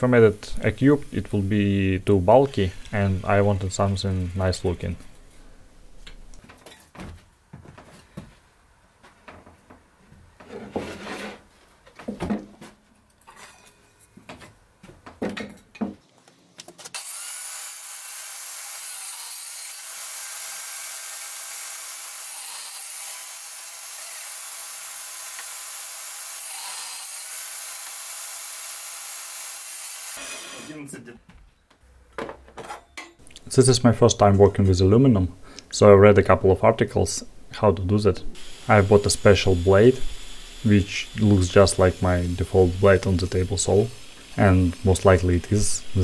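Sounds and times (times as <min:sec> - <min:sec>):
quiet knocks and scrapes: 0:09.0 - 0:16.9
table saw cutting wood: 0:16.9 - 0:30.8, 0:38.4 - 0:46.0.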